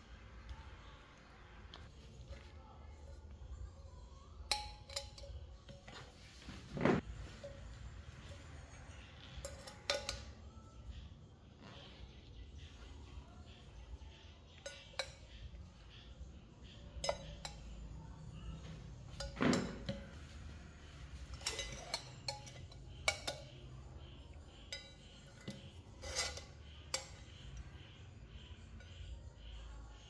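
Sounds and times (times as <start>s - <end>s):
metal clinks and knocks: 18.6s - 20.4s, 21.0s - 23.6s.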